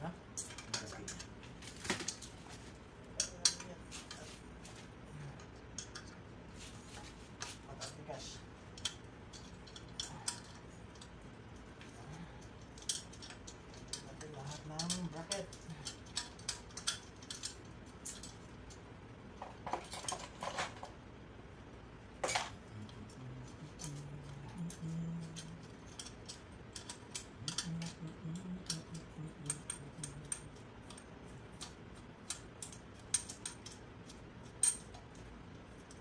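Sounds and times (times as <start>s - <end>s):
metallic clicks of hand tools: 12.4s - 18.8s, 24.6s - 35.1s.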